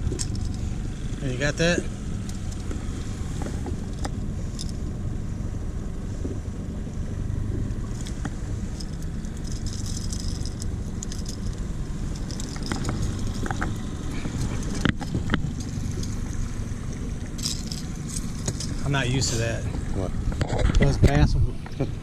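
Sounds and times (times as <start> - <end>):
metallic clicks and rattles: 0.0 - 0.8, 2.2 - 4.8, 7.5 - 18.9
boat motor rumbling: 0.0 - 22.0.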